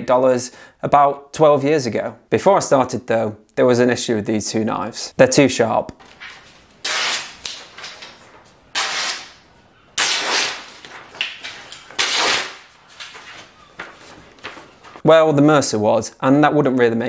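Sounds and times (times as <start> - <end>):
knife slicing paper: 6.8 - 7.9, 8.8 - 9.4, 10.0 - 12.7.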